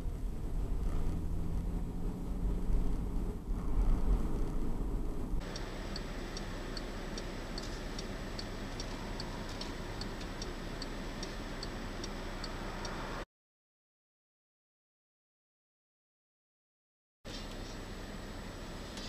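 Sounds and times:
car cabin hum: 0.0 - 13.2
road rumble: 0.0 - 13.3, 17.3 - 19.0
turn signal clicking: 5.4 - 13.2.

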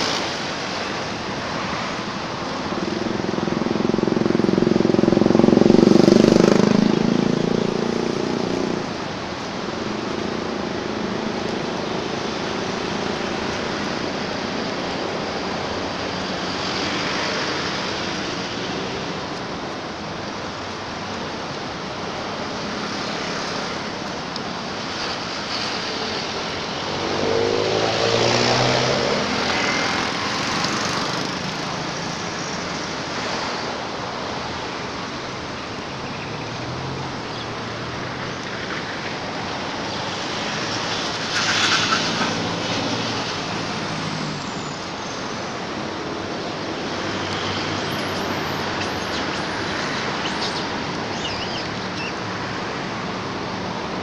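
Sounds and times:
road traffic rushing: 0.0 - 54.0
vehicle passing: 1.6 - 9.2, 25.6 - 33.4.

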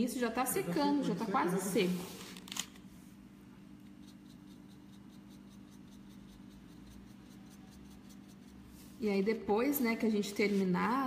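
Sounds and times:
low steady hum: 0.0 - 11.0
paintbrush strokes on paper: 4.0 - 11.0.

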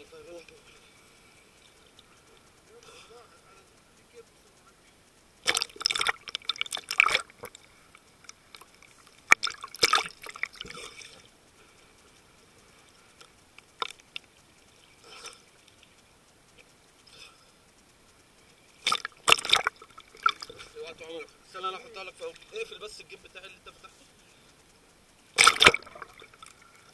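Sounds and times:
sea water splashing: 5.4 - 11.3, 18.8 - 20.8, 25.4 - 26.9.

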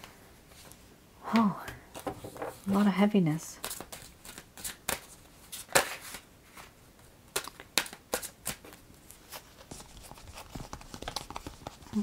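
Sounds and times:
cards shuffling: 3.6 - 12.0.

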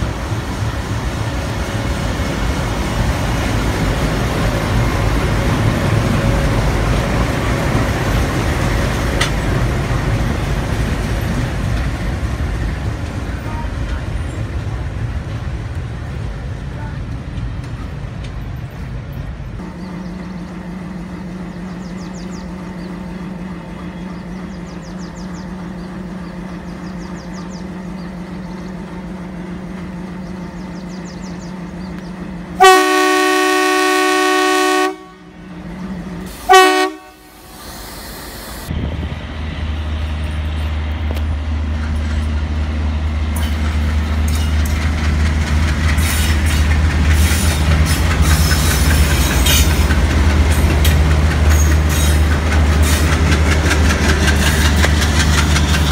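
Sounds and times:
diesel locomotive engine rumble: 0.0 - 55.9
train rumbling past: 0.0 - 55.9
locomotive air horn: 32.6 - 35.4, 36.3 - 37.6.

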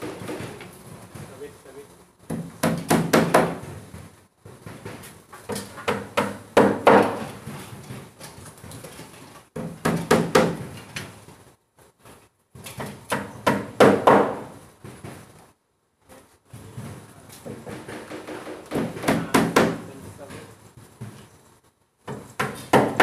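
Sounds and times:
hammer knocking on plywood: 2.3 - 3.8, 4.7 - 7.4, 9.6 - 10.7, 12.8 - 15.2, 17.5 - 19.9, 22.0 - 23.0.

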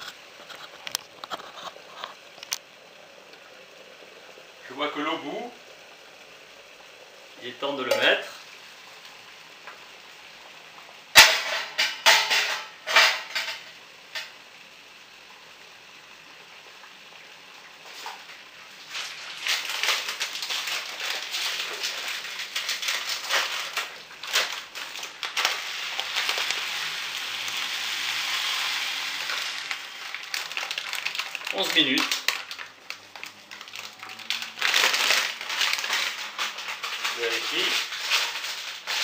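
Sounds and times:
rice pouring into water hissing: 0.0 - 39.0
rice packet crackling: 18.0 - 39.0.

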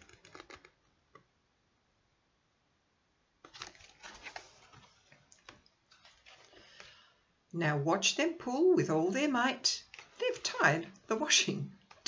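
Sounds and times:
book page turning: 0.0 - 0.8, 3.4 - 7.0, 9.8 - 10.6.

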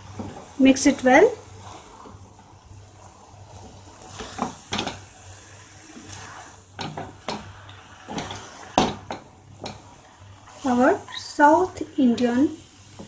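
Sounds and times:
soft rustle of food mixture: 0.0 - 13.0
spatula knocking and scraping pan: 3.6 - 5.1, 6.0 - 10.9.

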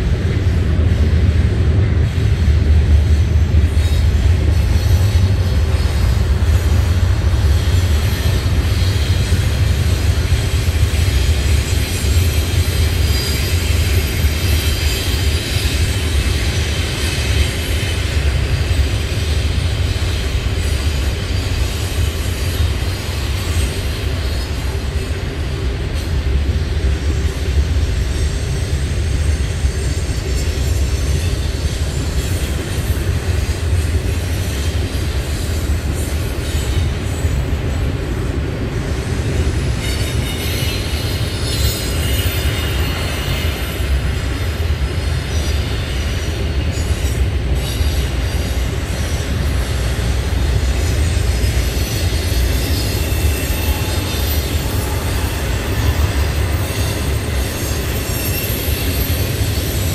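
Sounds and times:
freight train wheels rumbling: 0.0 - 59.9
wheel squeal: 39.7 - 59.9.

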